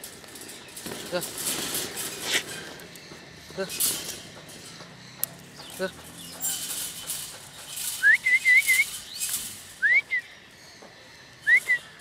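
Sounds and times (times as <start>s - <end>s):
plastic carrier rattling on cage wire: 0.0s - 2.9s.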